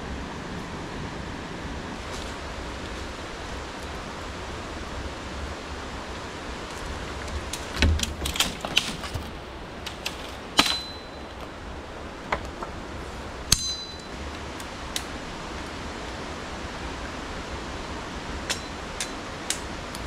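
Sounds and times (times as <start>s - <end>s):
river water rushing: 0.0s - 20.0s
knocks and clatter: 6.7s - 11.2s
sharp ringing clink: 10.6s - 11.3s, 13.5s - 14.2s, 18.5s - 19.2s.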